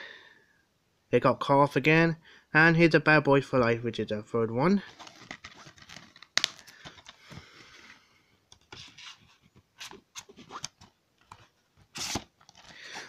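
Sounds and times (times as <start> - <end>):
cardboard rubbing: 4.8 - 8.0, 8.6 - 13.0
plastic cases clicking and scraping: 4.9 - 13.0.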